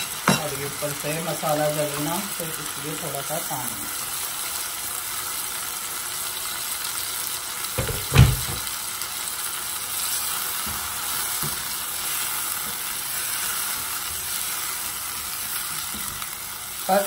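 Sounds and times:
chicken sizzling in oil: 0.0s - 17.0s
spatula knocking on pot: 7.8s - 8.6s.

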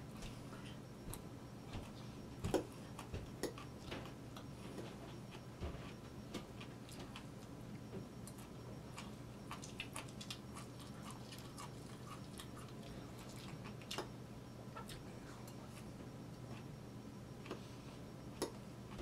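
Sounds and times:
steady low hum: 0.0s - 19.0s
quiet chewing: 1.8s - 7.6s, 8.2s - 16.8s.

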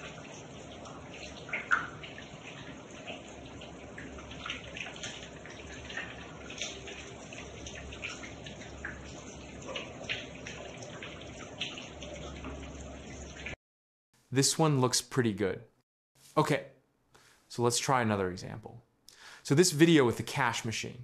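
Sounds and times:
droplets pattering and splashing: 0.0s - 13.6s
shower water running: 0.0s - 13.6s.

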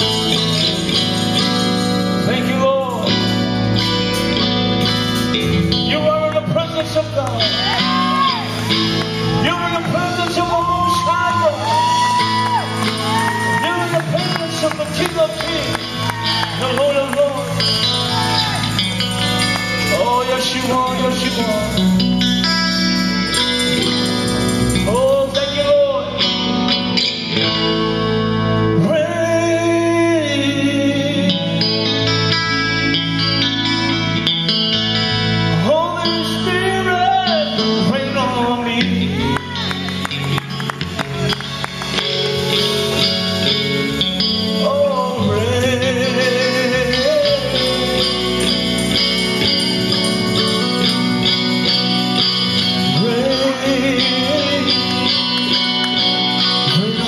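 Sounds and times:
electric guitar sustained chords: 0.0s - 57.0s
man singing into a microphone: 2.2s - 3.5s, 5.8s - 8.5s, 9.3s - 12.7s, 13.3s - 18.6s, 19.8s - 22.0s, 24.8s - 26.7s, 28.6s - 33.4s, 35.5s - 39.7s, 44.3s - 49.0s, 52.6s - 55.6s, 56.6s - 57.0s.

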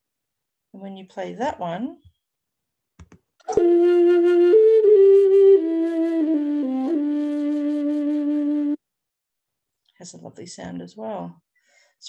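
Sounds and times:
low end-blown flute: 3.5s - 8.8s.

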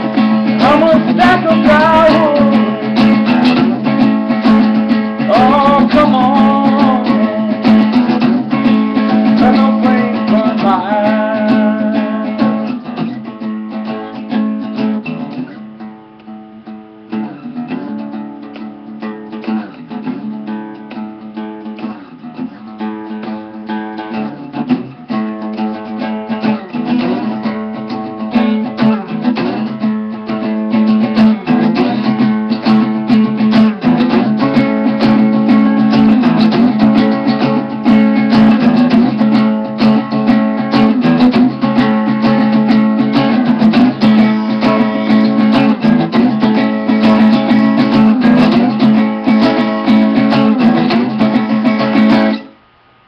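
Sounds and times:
guitar strummed and picked: 0.0s - 52.8s.

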